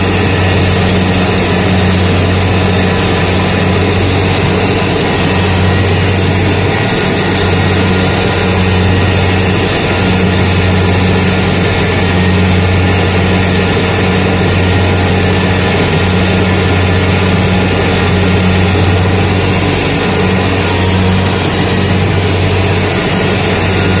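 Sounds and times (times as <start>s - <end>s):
combine harvester engine drone: 0.0s - 24.0s.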